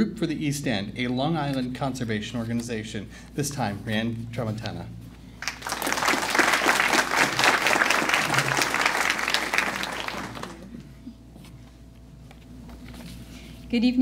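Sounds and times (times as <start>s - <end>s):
audience applauding: 5.4s - 10.8s.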